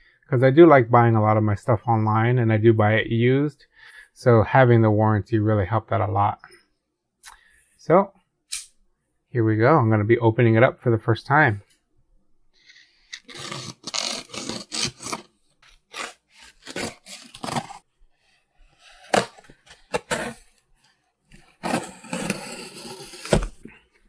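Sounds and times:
packing tape ripping: 13.2 - 17.8, 18.9 - 20.5, 21.6 - 23.6
cardboard thump: 23.2 - 23.6.

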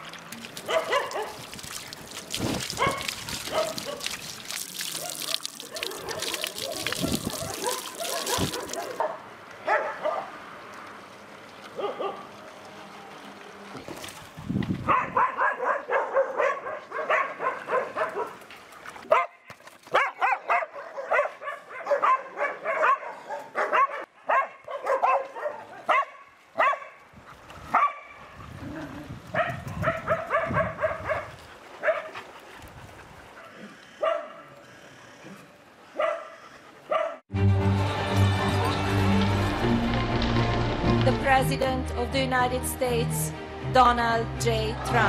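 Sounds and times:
dogs barking: 0.6 - 1.5, 2.7 - 4.2, 4.8 - 10.4, 11.7 - 12.4, 14.9 - 18.4, 19.1 - 27.0, 27.7 - 28.2, 29.3 - 32.3, 33.3 - 37.3.

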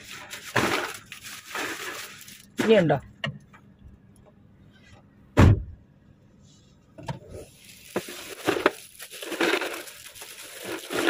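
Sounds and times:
rustling of shifted goods: 0.0 - 3.7, 6.5 - 11.0.

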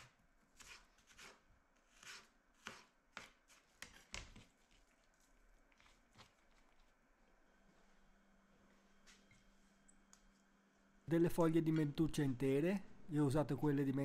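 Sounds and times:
knife slicing on cutting board: 0.0 - 4.2.

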